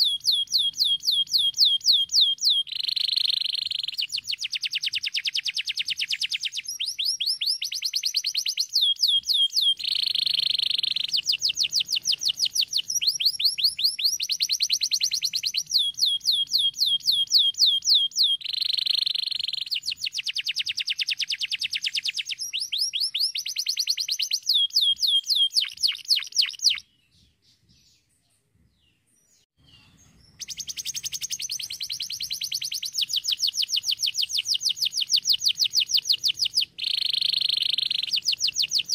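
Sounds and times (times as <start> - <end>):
canary singing: 0.0 - 28.1, 28.8 - 38.9.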